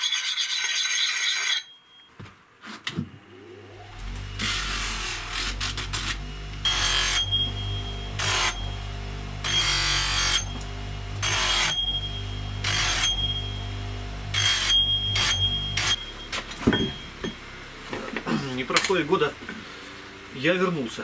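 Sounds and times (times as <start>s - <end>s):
axe grinding on wheel: 0.0s - 1.8s, 3.9s - 18.9s
bench grinder motor humming: 3.3s - 20.4s.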